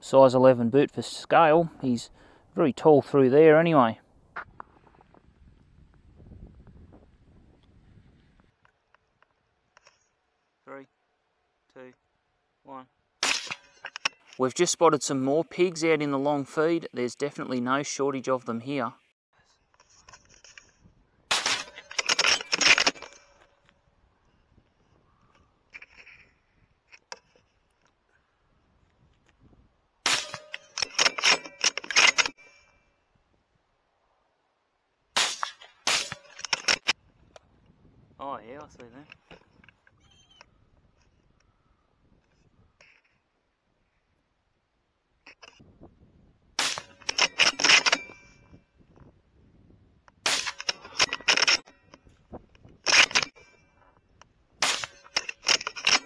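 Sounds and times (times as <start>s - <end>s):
rifle bolt metallic clicks: 21.3s - 23.5s, 30.1s - 32.6s, 46.6s - 48.2s, 50.1s - 51.7s, 52.8s - 53.5s, 54.6s - 56.0s.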